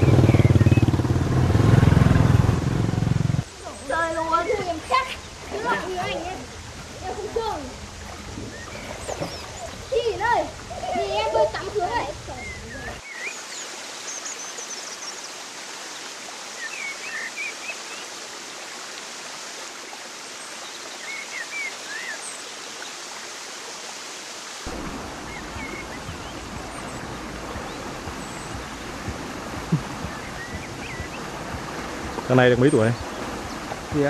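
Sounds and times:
bird chirps: 0.0s - 1.0s, 12.3s - 15.2s, 25.2s - 33.7s
canal water rushing: 0.0s - 34.0s
running water: 0.0s - 34.0s.

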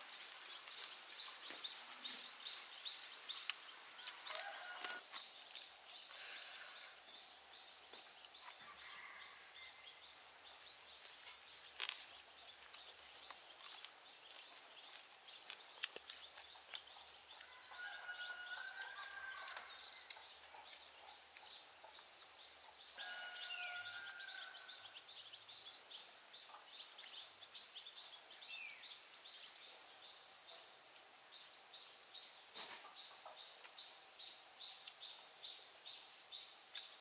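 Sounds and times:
birds calling: 0.0s - 29.5s.

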